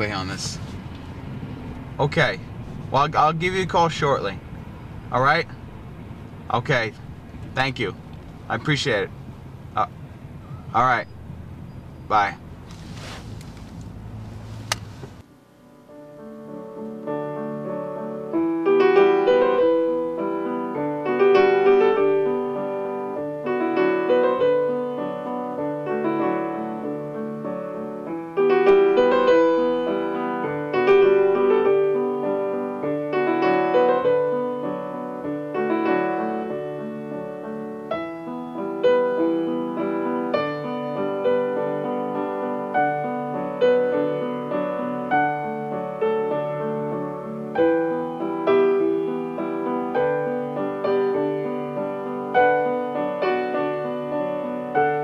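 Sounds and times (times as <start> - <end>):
piano playing repeating pattern: 15.9 - 55.0.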